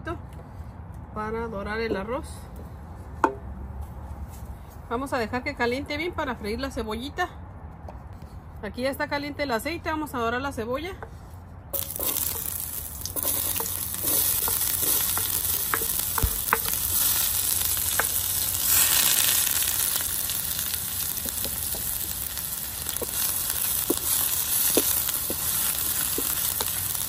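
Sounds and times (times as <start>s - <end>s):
oil spitting and popping: 11.8s - 27.0s
onion sizzling in hot oil: 11.8s - 27.0s
wooden spoon stirring: 11.8s - 27.0s.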